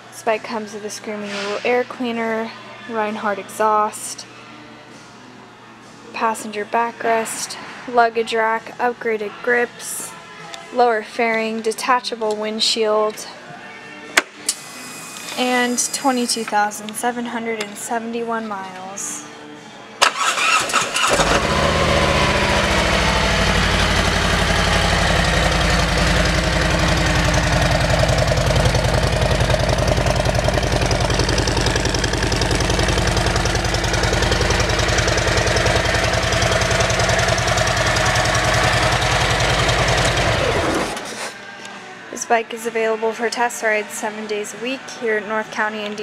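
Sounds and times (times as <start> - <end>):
motorcycle engine starting and idling: 20.0 - 41.2.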